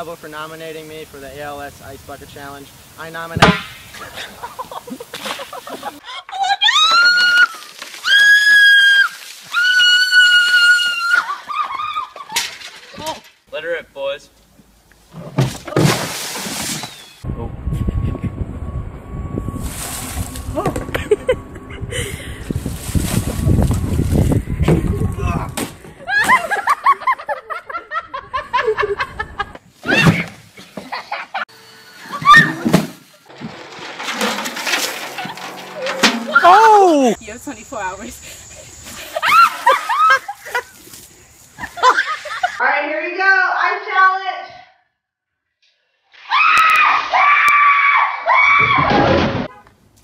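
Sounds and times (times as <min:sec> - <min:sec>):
noisy hiss: 0:00.0 - 0:06.0
girl screaming: 0:06.1 - 0:12.2, 0:32.1 - 0:32.6, 0:36.3 - 0:37.2, 0:46.3 - 0:48.9
person laughing: 0:17.6 - 0:18.4, 0:20.6 - 0:22.5.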